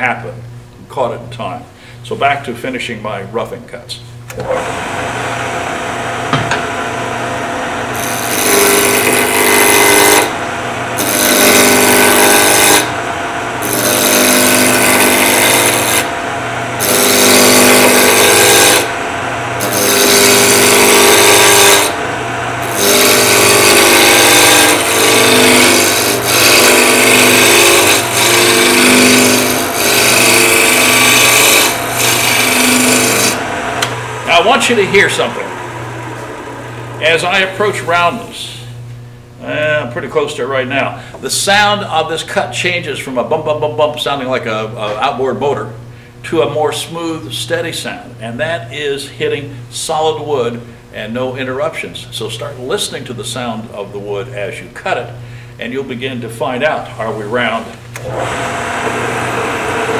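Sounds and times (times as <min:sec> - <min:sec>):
wood lathe humming: 0:04.3 - 0:38.5, 0:57.0 - 0:59.9
gouge cutting spinning wood: 0:04.4 - 0:38.4, 0:58.0 - 0:59.9.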